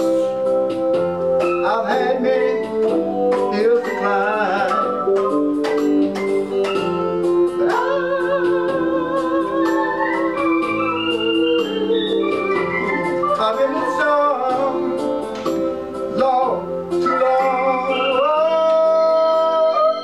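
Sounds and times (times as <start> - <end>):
hi-hat beat: 0.0 - 19.5
electronic keyboard organ chords: 0.0 - 20.0
man singing with vibrato: 1.4 - 5.1, 7.3 - 15.3, 16.1 - 20.0.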